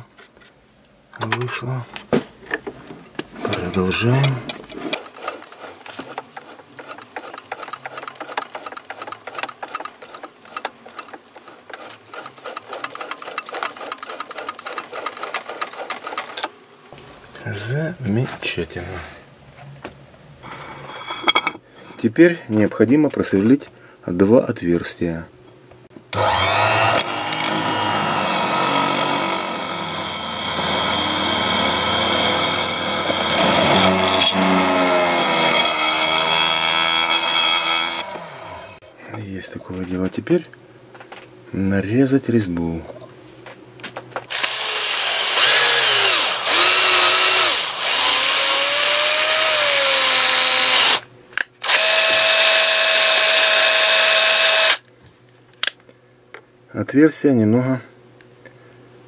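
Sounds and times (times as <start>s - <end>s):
lathe and tap clicking and rattling: 2.5s - 16.5s
drill press drilling metal: 26.2s - 38.2s, 44.3s - 51.0s, 51.6s - 54.8s.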